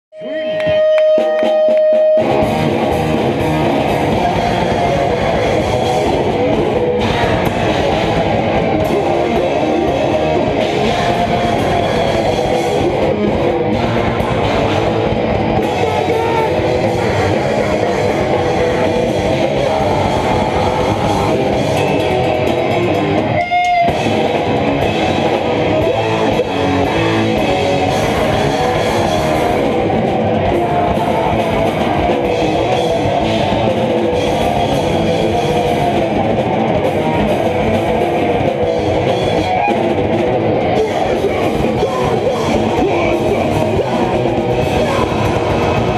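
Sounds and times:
distorted electric guitar: 0:00.1 - 0:45.9
fast dense drumming: 0:02.2 - 0:45.9.

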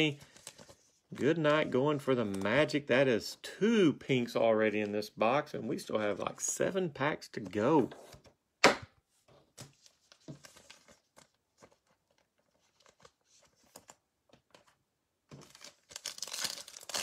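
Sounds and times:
wrapper crinkling torn open: 0:15.4 - 0:17.0.

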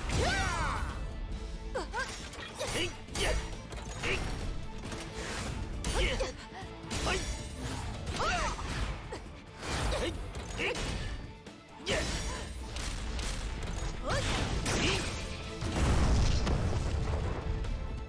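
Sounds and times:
action music: 0:00.0 - 0:18.0
deep explosion: 0:15.6 - 0:17.6.

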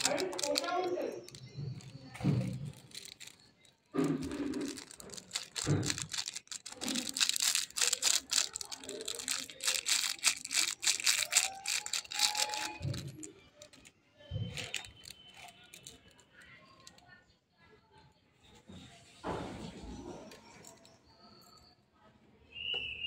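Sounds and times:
sachets crinkling and tearing: 0:00.0 - 0:17.0.

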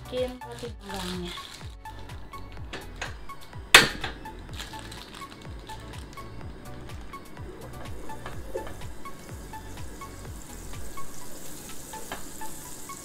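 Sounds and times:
background music with steady beat: 0:00.0 - 0:13.0
margarine sizzling in pan: 0:02.7 - 0:13.0.

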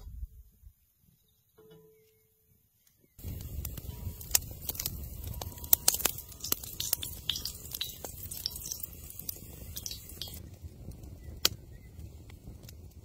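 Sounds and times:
wood fire crackling and popping: 0:03.2 - 0:13.0.

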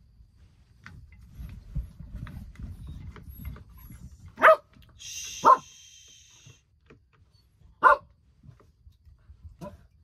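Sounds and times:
dog barking: 0:04.4 - 0:04.8, 0:05.4 - 0:05.7, 0:07.8 - 0:08.2.

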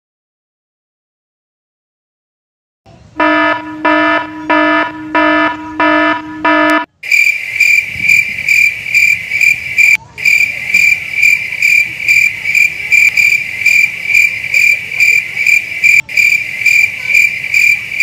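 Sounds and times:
buzzy electronic beeps: 0:03.2 - 0:12.2
high cricket chirp effect: 0:06.9 - 0:18.0.

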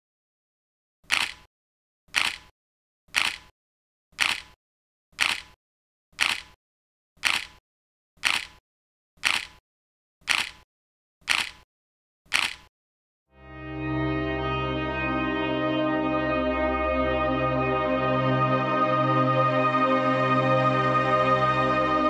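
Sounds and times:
camera shutter clicks: 0:01.1 - 0:01.5, 0:02.2 - 0:02.5, 0:03.2 - 0:03.5, 0:07.2 - 0:07.6, 0:08.2 - 0:08.6, 0:12.3 - 0:12.7.

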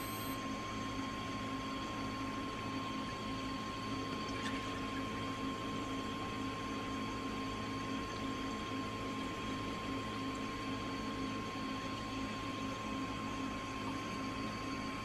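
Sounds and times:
thin high tone: 0:00.0 - 0:00.4
aquarium equipment humming: 0:00.0 - 0:15.0.

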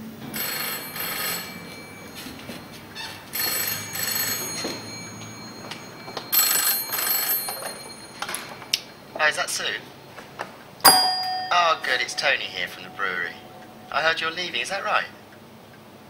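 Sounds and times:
telephone double ring: 0:00.3 - 0:09.0, 0:10.9 - 0:14.4.

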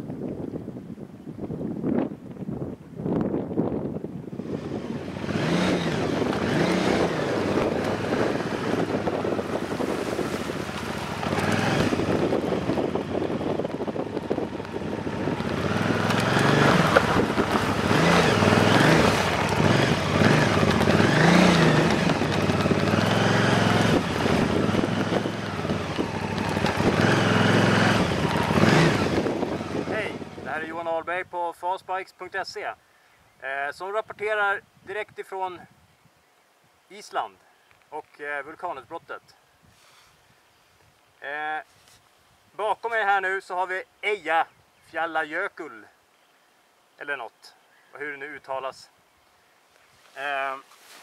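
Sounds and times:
wind buffeting microphone: 0:00.0 - 0:31.3
motorcycle engine revving: 0:04.4 - 0:30.7.

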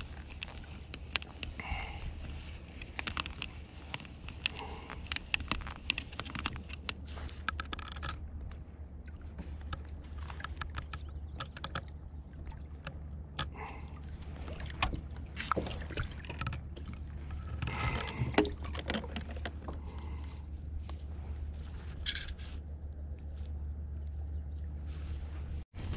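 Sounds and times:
tackle clicks and knocks: 0:00.0 - 0:01.6, 0:02.2 - 0:08.6, 0:09.4 - 0:12.0, 0:14.5 - 0:20.2
steady low rumble: 0:00.0 - 0:25.9
water splashing: 0:09.0 - 0:20.2.

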